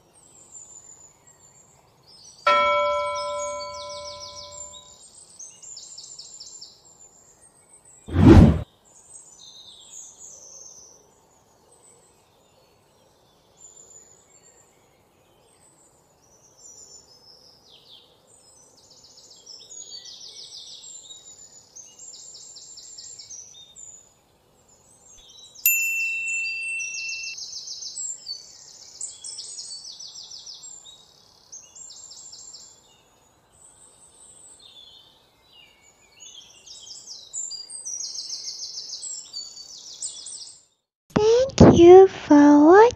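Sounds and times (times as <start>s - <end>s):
small birds chirping: 0.4s - 4.9s, 18.5s - 40.6s
bright ringing tone: 2.5s - 4.9s, 25.7s - 27.4s.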